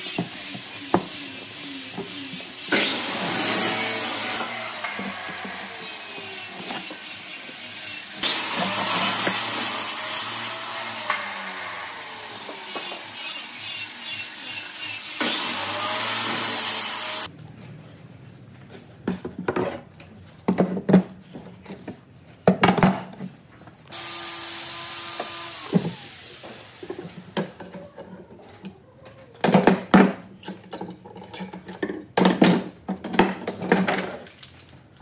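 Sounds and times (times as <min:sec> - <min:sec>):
tools and wood knocking: 0:00.0 - 0:05.9, 0:19.0 - 0:23.4, 0:25.1 - 0:34.2
power tool running: 0:00.0 - 0:17.3, 0:23.9 - 0:27.7
power tool winding down: 0:00.0 - 0:17.3, 0:23.9 - 0:27.4.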